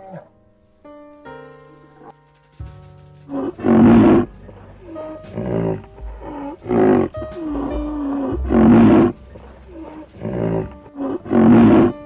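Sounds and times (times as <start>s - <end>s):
background music with held notes: 0.0s - 12.0s
deep animal calls: 3.1s - 12.0s.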